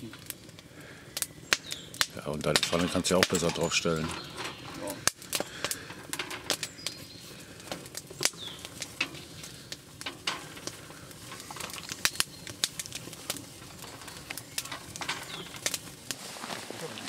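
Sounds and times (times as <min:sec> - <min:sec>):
wood fire crackling: 0:00.0 - 0:17.0.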